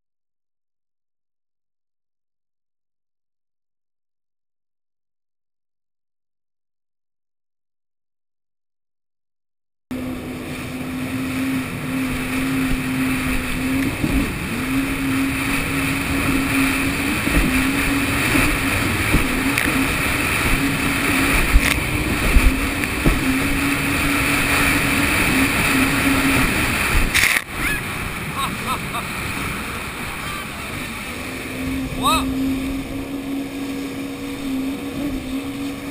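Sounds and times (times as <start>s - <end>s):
jet ski engine running: 9.9s - 35.9s
wind and spray rushing: 10.0s - 35.9s.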